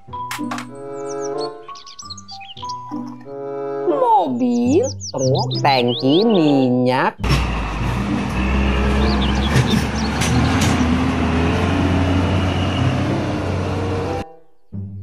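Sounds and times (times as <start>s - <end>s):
truck diesel engine running: 7.2s - 14.2s
truck knocks: 7.2s - 14.2s.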